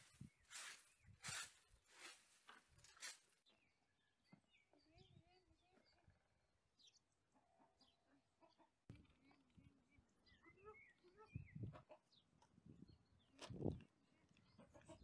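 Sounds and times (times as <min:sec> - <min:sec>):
broom sweeping dirt floor: 0:00.0 - 0:03.4
faint bird chirps: 0:03.6 - 0:12.3.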